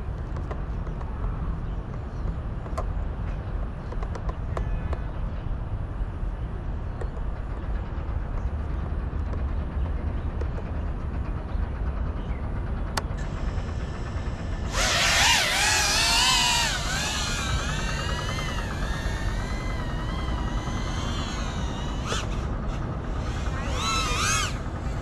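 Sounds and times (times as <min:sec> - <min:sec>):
quadcopter motors whining: 0:13.0 - 0:25.0.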